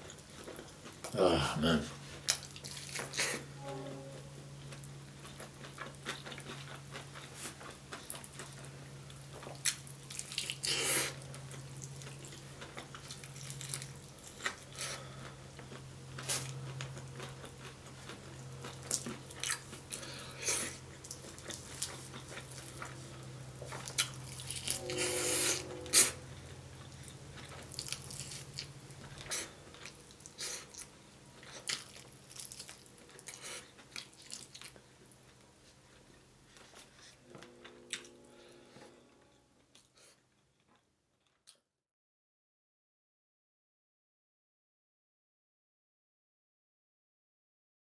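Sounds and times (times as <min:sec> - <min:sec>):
low steady hum: 0:00.0 - 0:40.2
wet chewing and lip smacking: 0:27.4 - 0:35.1.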